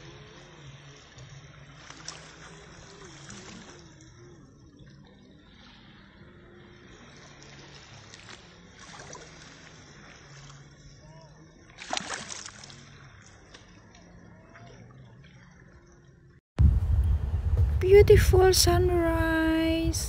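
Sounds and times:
small waves lapping on shore: 0.0s - 16.2s
low steady hum: 0.0s - 20.0s.

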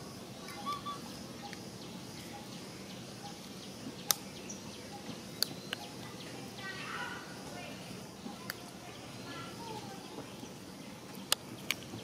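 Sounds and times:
faint bird chirps: 0.0s - 12.0s
outdoor background noise: 0.0s - 12.0s
sharp clicks: 4.0s - 4.3s.

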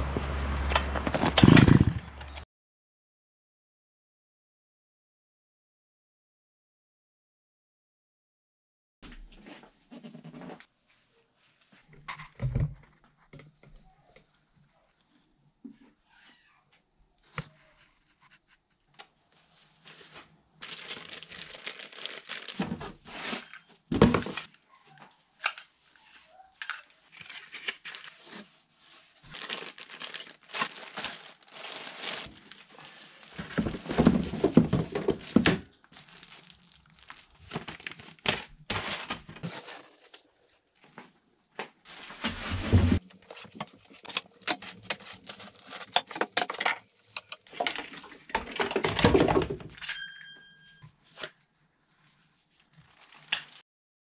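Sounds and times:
plastic bags crinkling: 20.6s - 23.6s, 29.2s - 41.0s, 41.9s - 48.6s, 52.7s - 53.6s.

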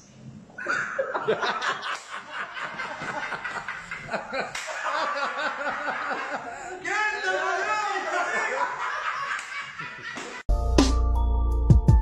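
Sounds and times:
man laughing: 0.6s - 6.8s, 7.4s - 10.4s.

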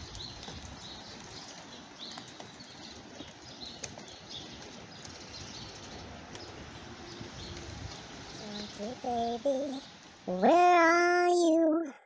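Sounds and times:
small birds chirping: 0.0s - 11.5s
light rain hissing: 5.5s - 11.9s.

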